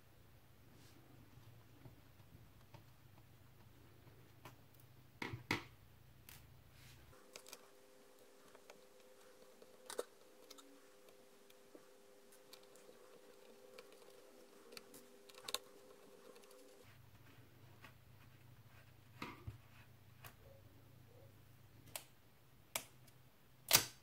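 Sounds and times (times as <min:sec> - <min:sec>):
faint steady hum: 0:00.0 - 0:24.0.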